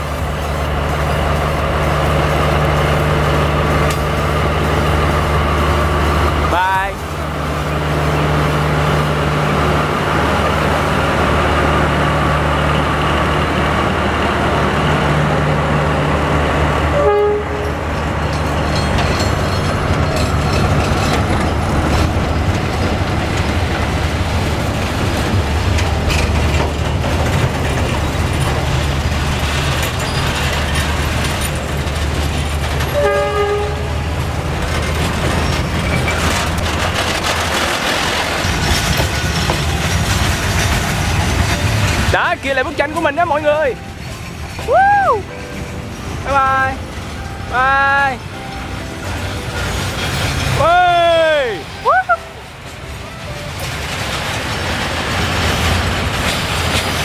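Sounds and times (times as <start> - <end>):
locomotive engine droning: 0.0 - 57.0
train wheels clattering on rails: 0.0 - 57.0
short train horn toots: 16.9 - 17.8, 32.9 - 34.0.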